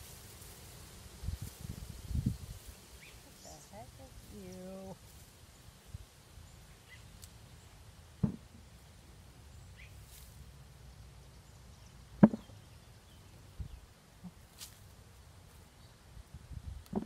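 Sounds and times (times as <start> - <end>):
dull thuds: 8.2 - 8.6, 12.2 - 12.6.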